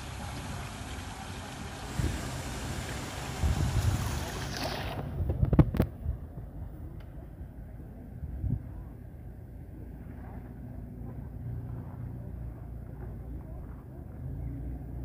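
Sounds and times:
steady hiss: 0.0s - 4.5s.

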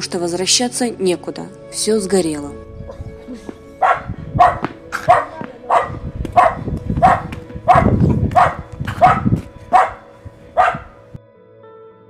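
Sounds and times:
dog barking: 3.8s - 11.0s.

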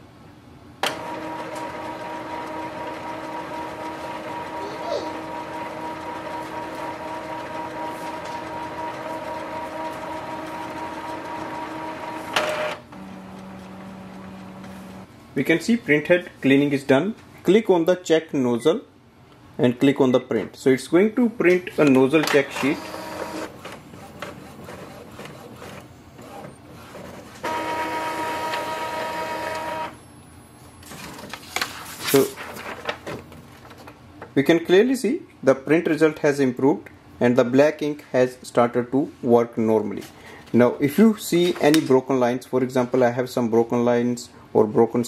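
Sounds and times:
printer mechanical whir: 0.8s - 15.1s, 21.5s - 30.1s
printer whine: 0.8s - 15.1s, 21.8s - 31.2s
printer mechanism clicks and rattles: 5.3s - 14.7s.

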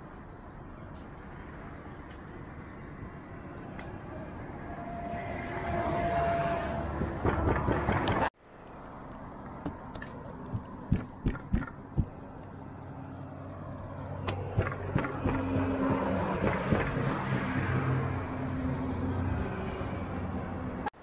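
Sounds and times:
low engine hum: 9.3s - 20.9s.

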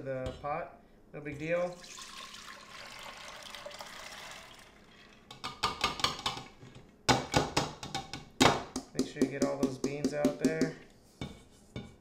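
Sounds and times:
peas and water pouring into pot: 1.7s - 5.3s.

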